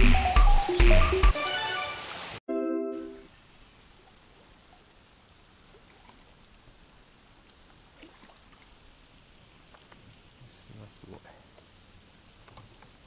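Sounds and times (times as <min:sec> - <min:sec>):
faint water against boat: 0:03.3 - 0:13.0.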